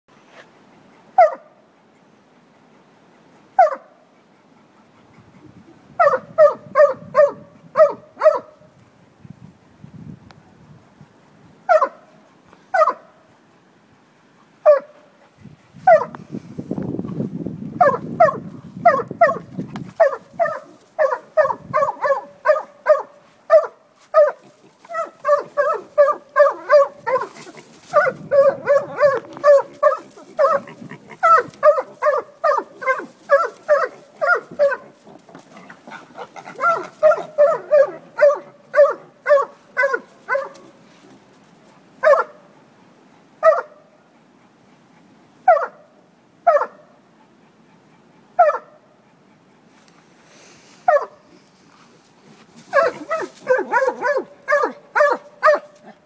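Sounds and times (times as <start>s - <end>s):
dog barking: 1.2s - 1.6s, 3.6s - 3.9s, 6.0s - 8.6s, 11.7s - 12.1s, 12.8s - 13.1s, 14.6s - 15.0s, 15.9s - 16.2s, 17.8s - 34.8s, 36.6s - 40.6s, 42.0s - 42.4s, 43.4s - 43.8s, 45.5s - 45.9s, 46.5s - 46.8s, 48.4s - 48.8s, 50.9s - 51.2s, 52.7s - 55.8s.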